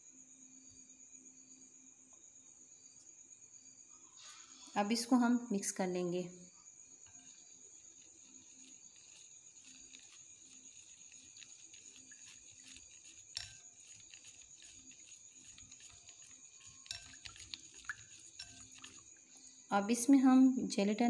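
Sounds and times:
whisking in a glass bowl: 7.0s - 19.6s
whisk tapping glass: 7.1s - 19.3s.

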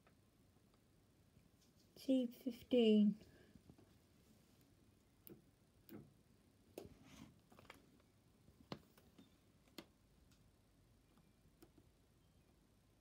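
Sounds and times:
faint irregular clicks: 0.0s - 2.0s, 4.6s - 12.0s.

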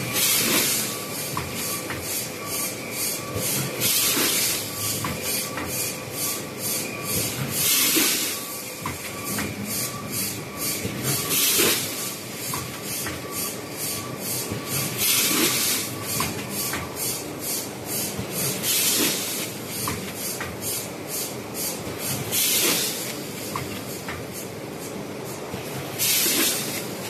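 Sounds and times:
compressed air hiss: 21.1s - 23.0s.

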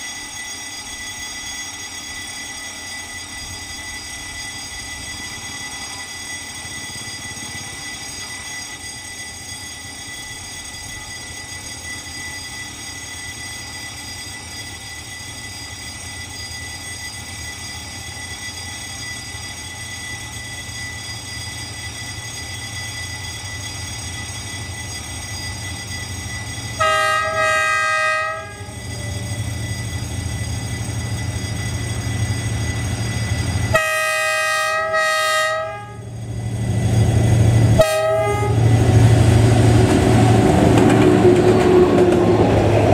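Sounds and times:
locomotive engine hum: 19.5s - 42.9s
train air horn blasts: 26.8s - 28.8s, 33.7s - 36.1s, 37.7s - 38.8s.

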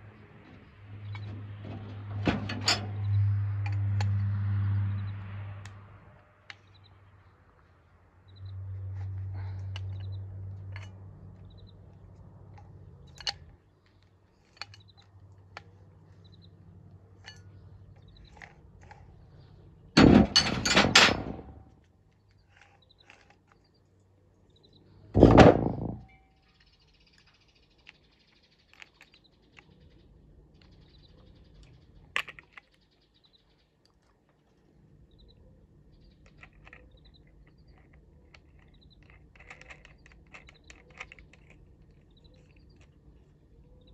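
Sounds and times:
loud metal clattering: 20.0s - 21.6s, 25.2s - 26.0s.

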